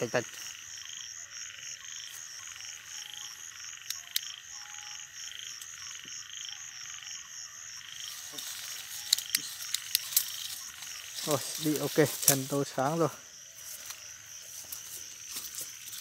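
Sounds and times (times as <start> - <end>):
frogs calling: 0.0 - 16.0
rustling through dry stalks: 8.0 - 16.0.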